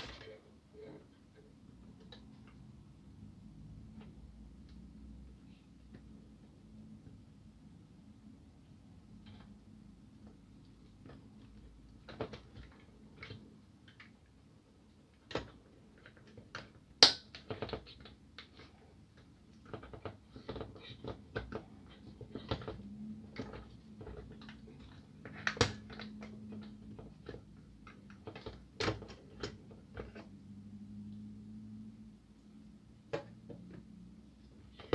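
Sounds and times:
sharp plastic snaps: 15.2s - 18.6s.

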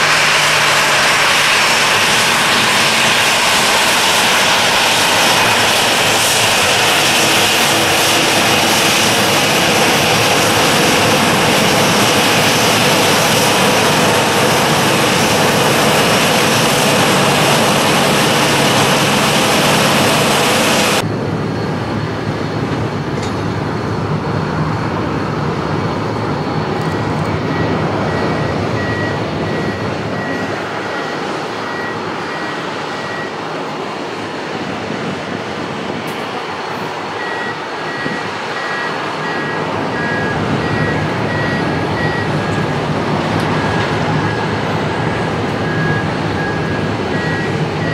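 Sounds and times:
jet engines hissing and whining: 0.0s - 47.9s
jet engines running quietly: 0.0s - 47.9s
reversing beeps: 26.8s - 33.4s, 37.2s - 42.8s, 43.4s - 47.9s.

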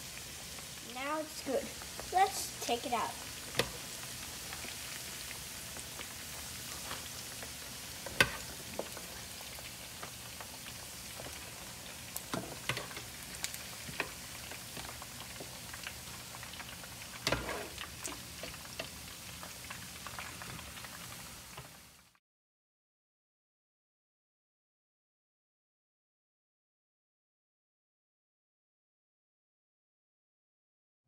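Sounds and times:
meat sizzling in hot oil: 0.0s - 22.2s.

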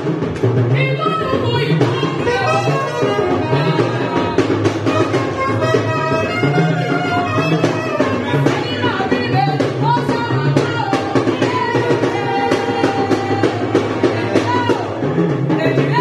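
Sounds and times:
steady drum beat: 0.0s - 16.0s
saxophone melody: 1.0s - 9.6s.

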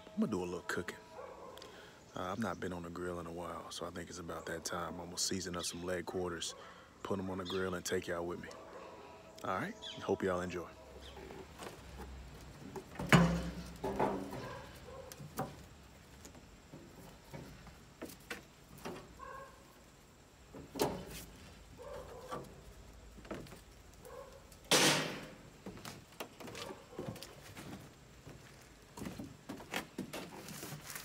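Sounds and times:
metal clank: 13.0s - 14.6s.

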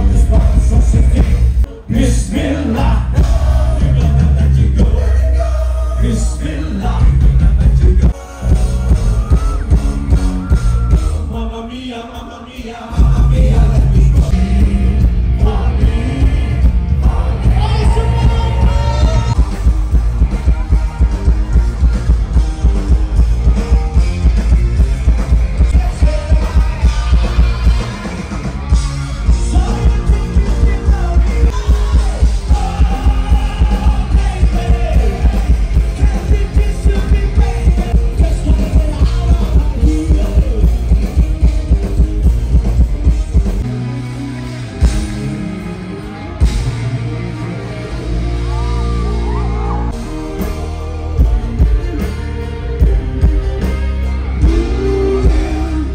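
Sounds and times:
live rock band: 0.0s - 55.9s
person singing: 11.2s - 19.6s, 25.6s - 28.4s, 29.2s - 42.0s, 54.3s - 55.9s.

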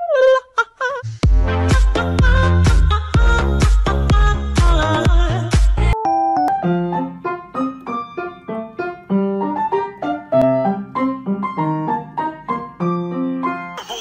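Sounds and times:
light piano melody: 5.9s - 14.0s.

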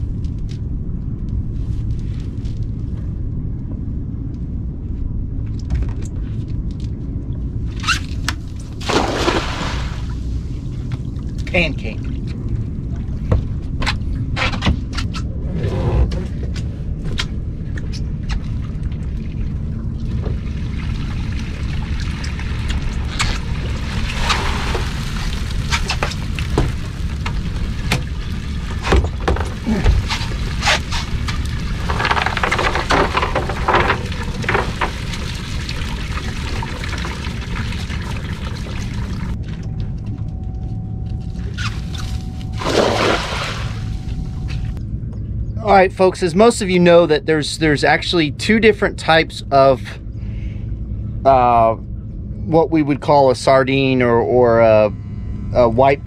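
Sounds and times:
steady low rumble: 0.0s - 56.0s
fish flapping on deck: 8.8s - 10.1s
water pouring and dripping: 17.6s - 40.0s.

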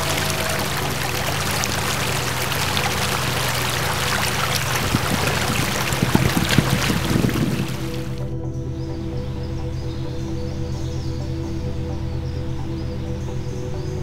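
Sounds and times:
water rushing and churning: 0.0s - 8.2s.

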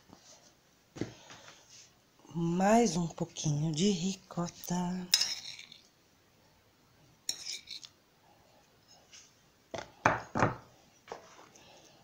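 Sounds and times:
cutlery scraping a bowl: 5.1s - 5.9s, 7.3s - 7.9s.

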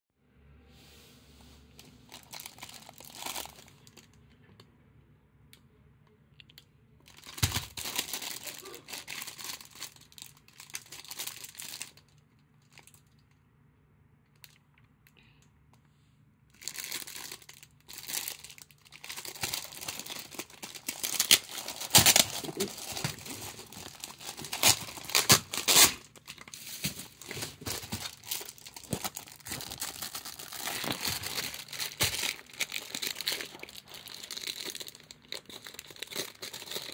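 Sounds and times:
plastic bag crinkling: 1.8s - 4.2s, 7.1s - 13.3s, 16.5s - 36.9s.

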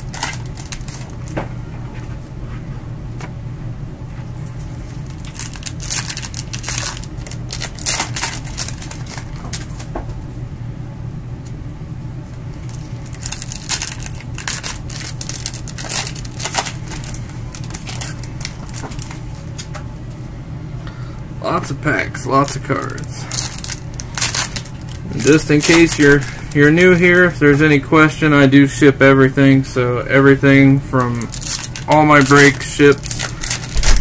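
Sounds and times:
crackly clicks of card packs: 0.0s - 1.5s, 4.5s - 10.2s, 12.6s - 19.9s, 21.9s - 27.7s, 31.0s - 34.0s
steady low hum: 0.0s - 34.0s.

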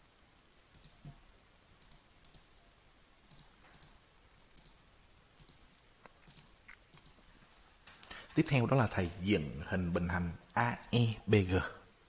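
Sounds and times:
faint computer mouse clicks: 0.7s - 1.2s, 1.8s - 2.5s, 3.3s - 4.8s, 5.4s - 7.2s.

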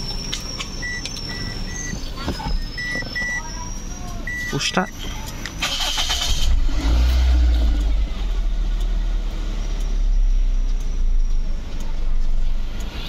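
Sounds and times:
car engine idling: 0.0s - 13.0s
starter cranking: 5.3s - 7.8s.

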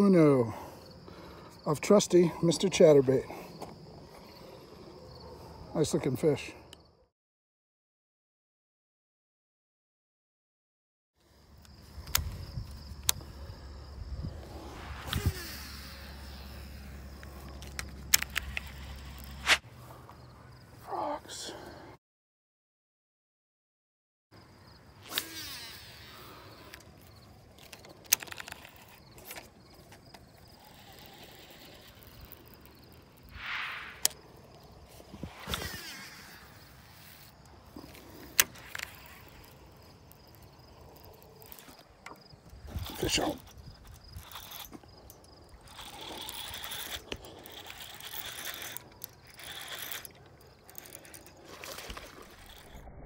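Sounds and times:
fishing reel clicking: 15.0s - 19.5s, 25.0s - 34.6s, 35.3s - 52.9s.

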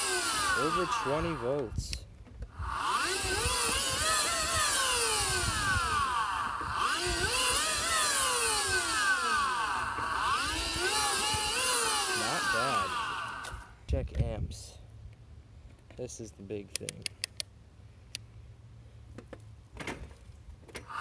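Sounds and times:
motor whine rising and falling: 0.0s - 13.8s
low rumbling: 0.0s - 13.9s.

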